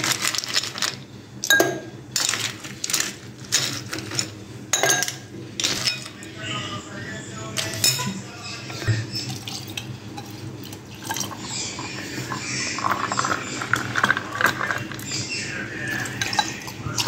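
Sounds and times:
milk pouring over ice: 9.3 - 17.0.

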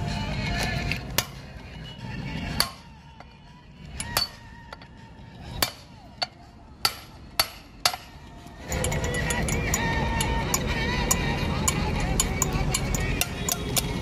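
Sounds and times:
hammer striking steel: 2.6 - 3.3, 4.0 - 4.9, 5.5 - 10.6, 11.6 - 14.0.

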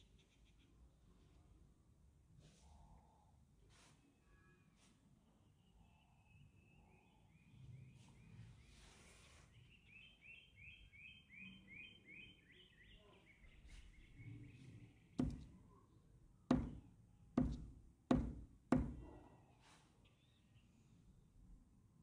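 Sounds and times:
bird chirping: 5.4 - 15.7.

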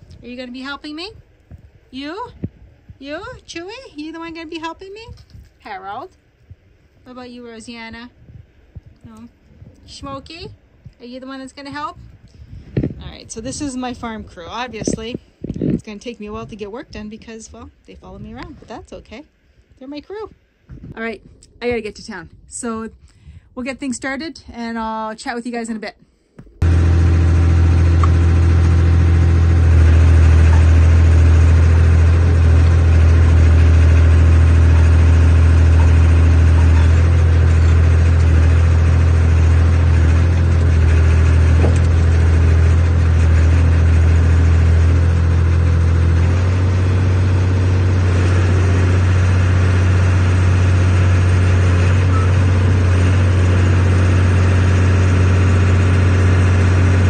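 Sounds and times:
excavator diesel engine running: 26.6 - 57.0.

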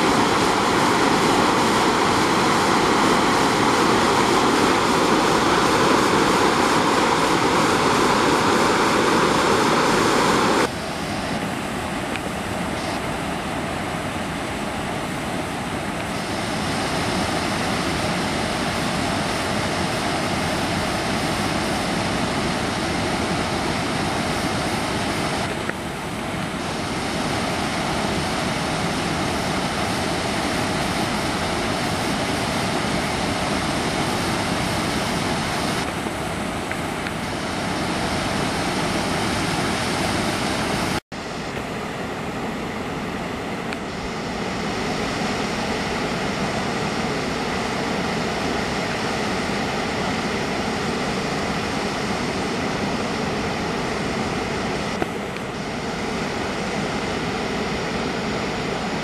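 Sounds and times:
water gushing into lake: 0.0 - 41.0.

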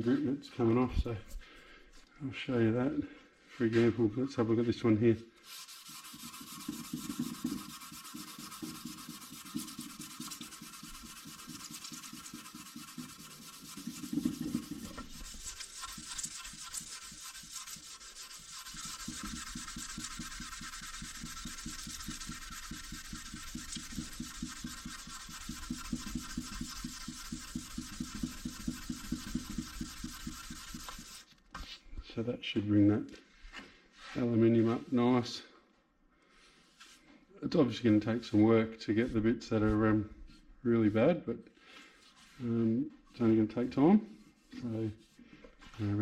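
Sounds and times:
sandpaper rubbing on metal: 5.4 - 31.4.

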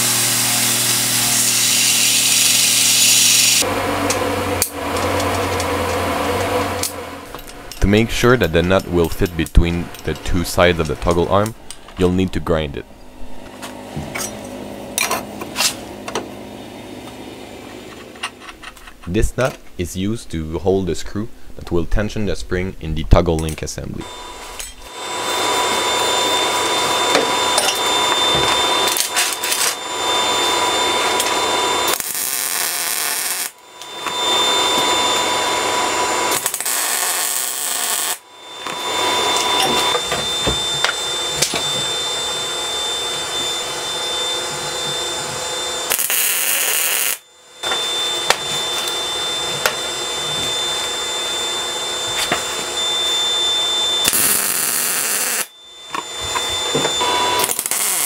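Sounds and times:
arc welding crackle and hiss: 0.0 - 3.7, 31.9 - 33.6, 36.3 - 38.2, 45.9 - 47.2, 54.0 - 55.5, 57.4 - 58.0
power tool whining: 0.0 - 11.9, 24.0 - 58.0.

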